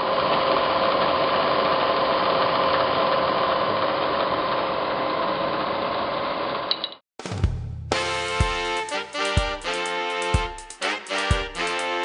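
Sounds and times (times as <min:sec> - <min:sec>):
milling machine running: 0:00.0 - 0:06.6.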